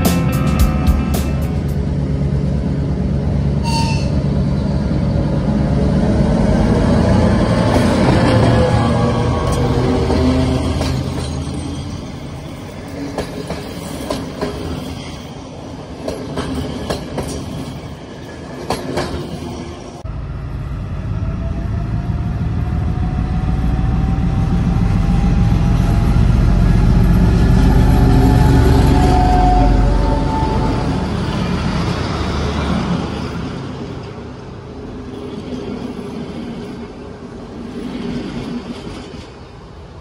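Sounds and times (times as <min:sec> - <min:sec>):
diesel locomotive engine rumbling: 0:00.0 - 0:40.0
train wheels clacking over rail joints: 0:07.6 - 0:15.2, 0:16.0 - 0:19.6.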